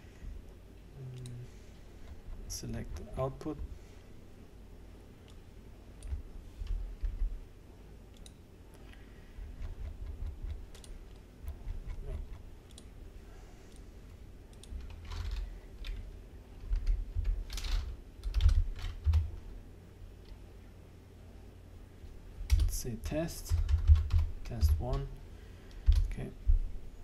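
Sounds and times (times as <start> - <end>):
typing on computer keyboard: 9.6 - 12.9, 14.5 - 16.0, 16.7 - 19.3, 23.4 - 25.1.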